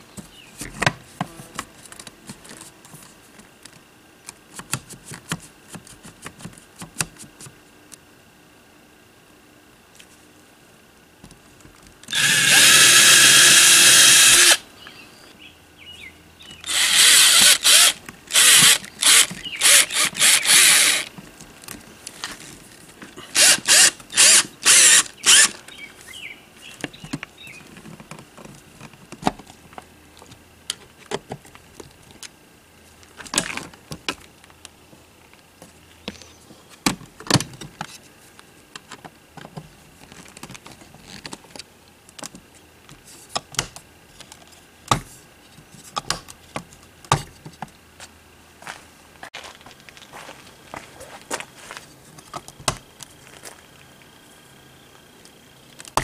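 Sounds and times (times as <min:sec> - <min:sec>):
cordless drill whirring: 0:12.1 - 0:14.6, 0:16.6 - 0:21.1, 0:23.3 - 0:25.6.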